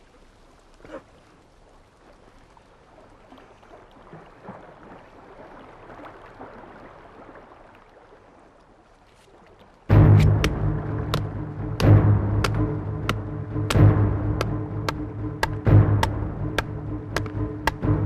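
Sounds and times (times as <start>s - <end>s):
soft rustles and ticks: 8.6s - 9.8s.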